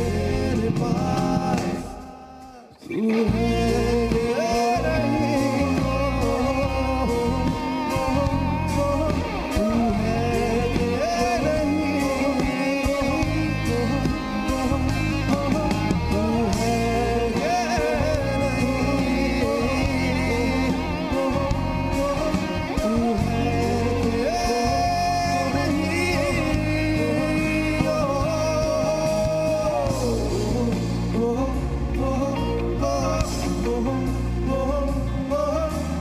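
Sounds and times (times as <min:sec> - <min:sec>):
live band playing pop ballad: 0:00.0 - 0:36.0
wordless vocal line: 0:00.0 - 0:36.0.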